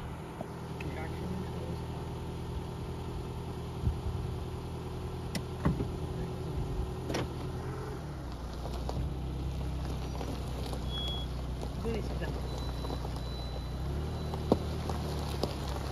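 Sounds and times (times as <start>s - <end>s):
low engine hum: 0.0s - 15.9s
tyres crunching gravel: 5.9s - 15.9s.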